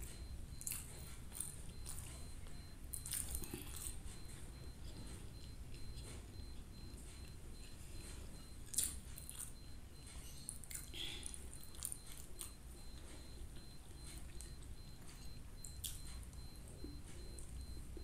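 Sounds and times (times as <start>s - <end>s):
wet chewing clicks: 0.0s - 9.6s, 10.4s - 18.0s.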